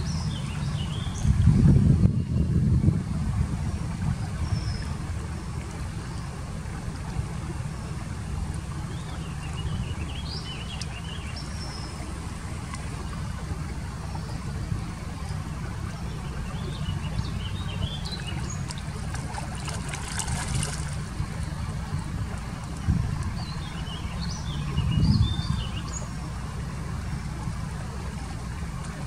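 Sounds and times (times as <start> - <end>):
steady low rumble: 0.0 - 29.0
water trickling and splashing: 0.0 - 29.0
small birds chirping: 16.0 - 21.6.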